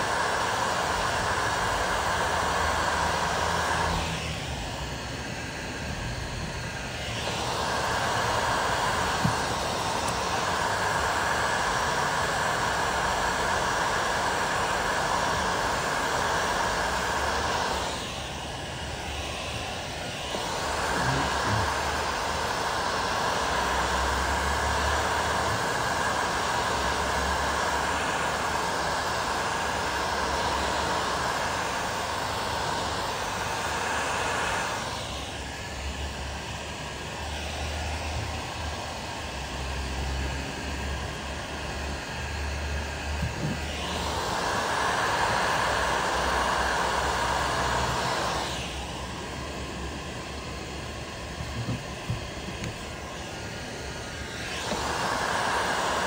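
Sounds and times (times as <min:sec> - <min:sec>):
heat gun blowing: 0:00.0 - 0:56.0.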